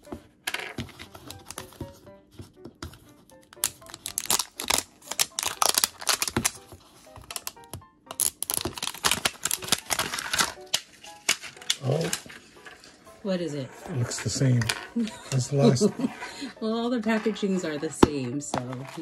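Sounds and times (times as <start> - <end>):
plastic film crackling: 3.4 - 13.1.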